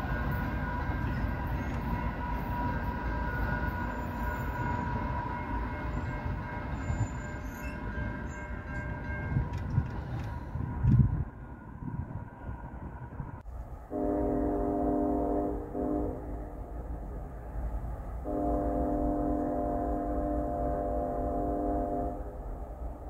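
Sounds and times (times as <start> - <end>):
locomotive air horn: 13.9 - 16.6, 18.2 - 22.6.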